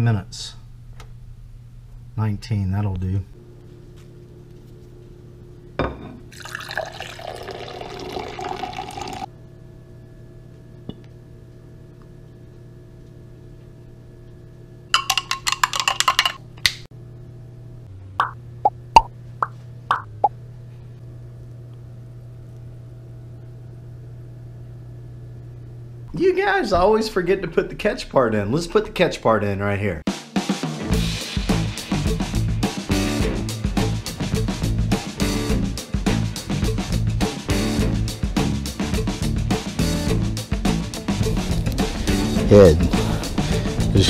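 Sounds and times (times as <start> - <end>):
low electrical hum: 0.0 - 30.0
soda pouring into a glass: 6.3 - 9.3.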